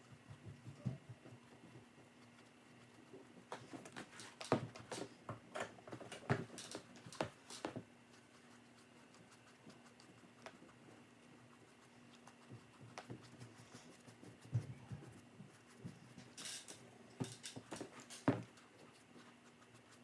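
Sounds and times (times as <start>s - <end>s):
low steady hum: 0.0s - 20.0s
paintbrush tapping and scratching: 6.4s - 16.4s.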